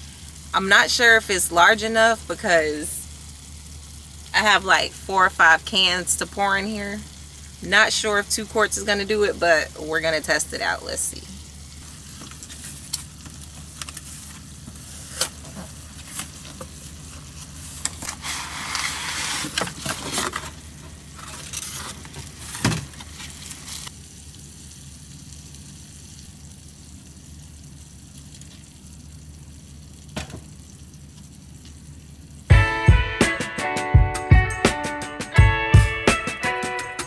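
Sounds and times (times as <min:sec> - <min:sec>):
meat sizzling in a skillet: 0:00.0 - 0:19.6, 0:20.6 - 0:32.4
cardboard packaging rustling: 0:11.9 - 0:23.9.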